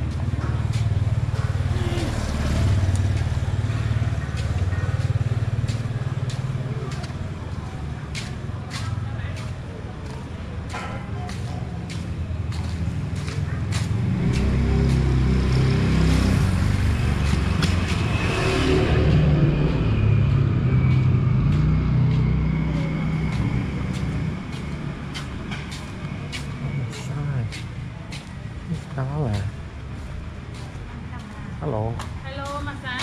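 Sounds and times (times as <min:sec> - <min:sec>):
vehicle driving past: 0:00.0 - 0:08.0, 0:12.5 - 0:28.0.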